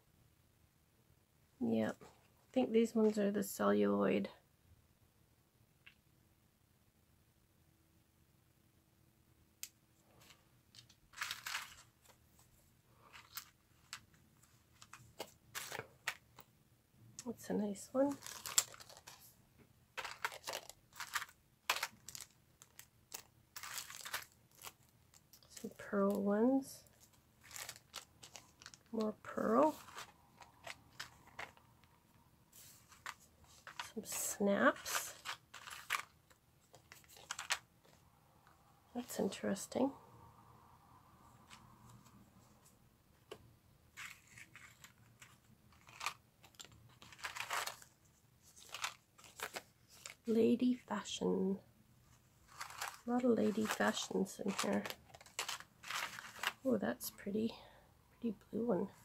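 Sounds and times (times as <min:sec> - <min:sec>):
cardboard cards rustling: 0:10.1 - 0:16.5, 0:17.7 - 0:38.0, 0:43.9 - 0:50.4, 0:52.1 - 0:56.7
plastic bags crinkling: 0:10.2 - 0:12.0, 0:13.0 - 0:14.1, 0:14.7 - 0:16.4, 0:18.0 - 0:19.4, 0:20.0 - 0:26.2, 0:26.8 - 0:38.0, 0:44.0 - 0:50.4, 0:52.4 - 0:56.7.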